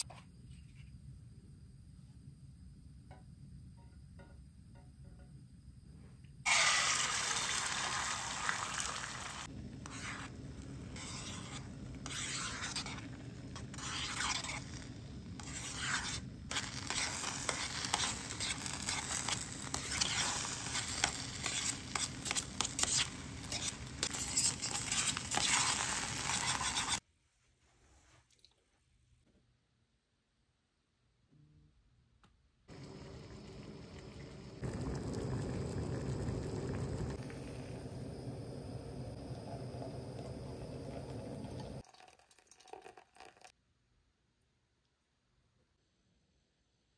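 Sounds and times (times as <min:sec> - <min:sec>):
eggs sizzling in oil: 0:06.5 - 0:27.0, 0:32.7 - 0:43.6
chopsticks scraping a pan: 0:09.8 - 0:27.0.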